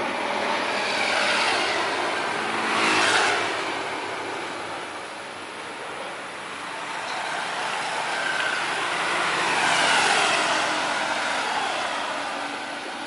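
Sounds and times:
jet airliner passing overhead: 7.2 - 12.8.

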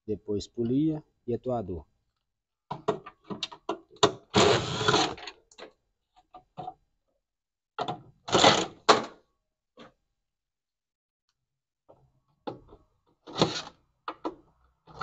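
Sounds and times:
cordless drill running: 4.4 - 5.2.

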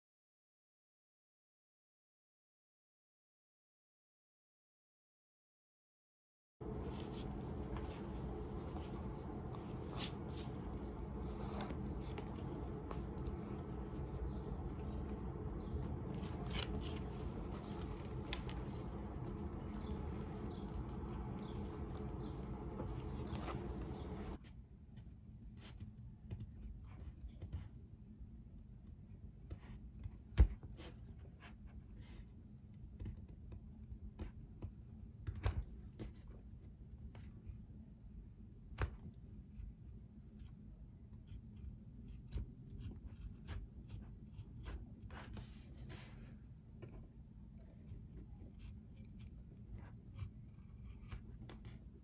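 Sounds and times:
steady low hum: 6.6 - 24.4.

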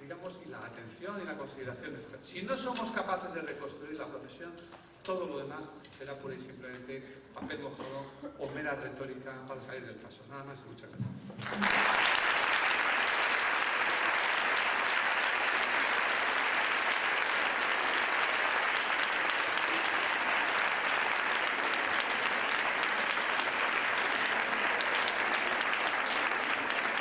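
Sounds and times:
audience applauding: 11.4 - 27.0.

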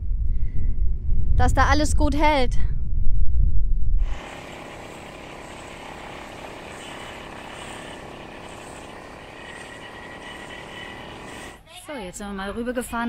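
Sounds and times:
wind buffeting microphone: 0.0 - 6.2
small outboard motor running: 4.0 - 11.6.

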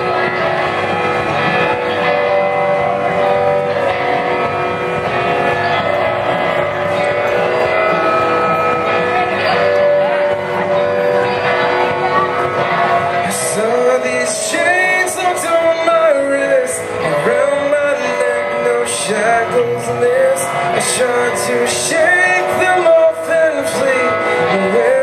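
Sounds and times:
metal band guitar chords: 0.0 - 25.0
person singing: 10.5 - 25.0.

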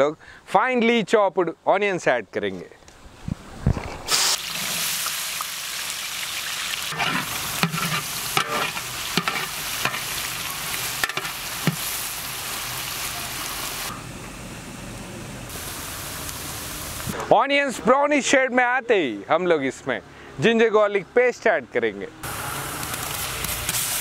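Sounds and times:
onions sizzling in hot oil: 4.1 - 14.0, 15.5 - 17.2, 22.3 - 24.0
metal ladle scraping a pot: 6.9 - 10.1, 11.0 - 11.8.

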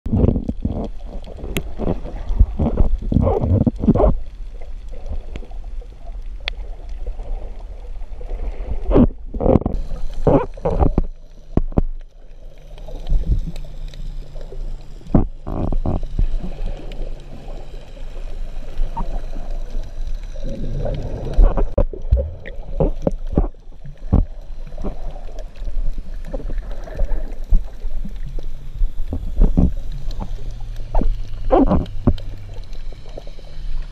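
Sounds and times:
muffled underwater rumble: 0.1 - 33.9
water bubbling and sloshing: 0.1 - 33.9.

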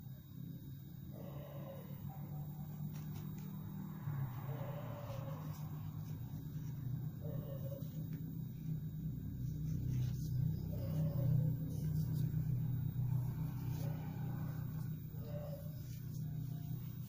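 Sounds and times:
cloth rustling: 2.7 - 3.8, 4.9 - 12.5
steady low rumble: 2.7 - 17.0.

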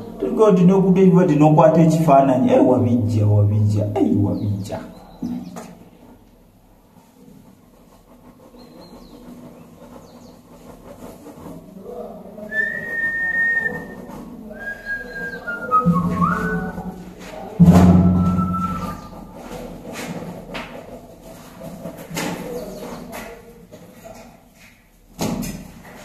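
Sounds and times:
person whistling notes: 12.4 - 17.0, 18.0 - 19.2.

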